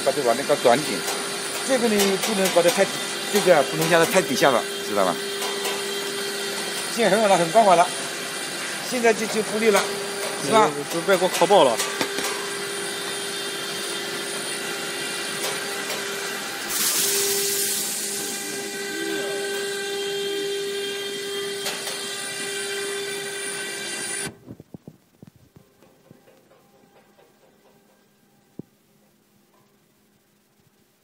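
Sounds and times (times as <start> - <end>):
production line machinery humming: 0.0 - 24.4
burst of hiss: 16.6 - 18.6.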